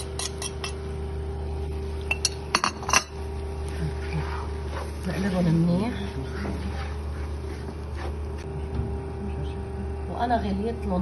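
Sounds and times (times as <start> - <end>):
spoon clinking against pot: 0.0 - 0.8.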